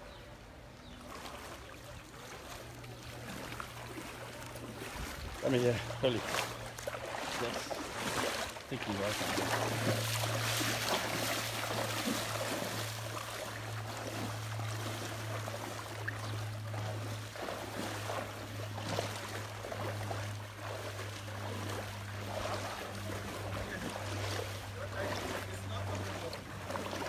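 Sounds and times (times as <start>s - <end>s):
people wading through water: 0.0s - 27.0s
steady low hum: 0.0s - 27.0s.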